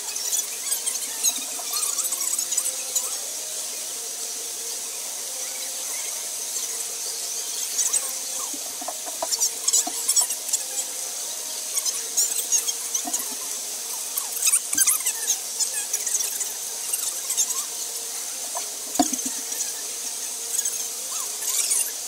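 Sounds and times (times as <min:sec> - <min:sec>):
marker squeaking on paper: 0:07.6 - 0:10.9, 0:11.8 - 0:13.6, 0:14.2 - 0:17.7.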